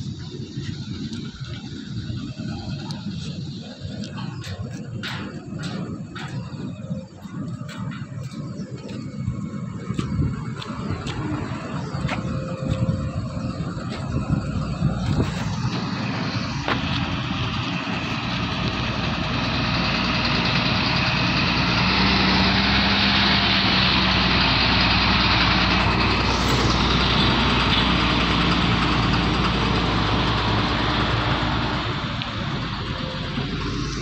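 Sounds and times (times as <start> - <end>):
truck diesel engine driving past: 9.3 - 34.0.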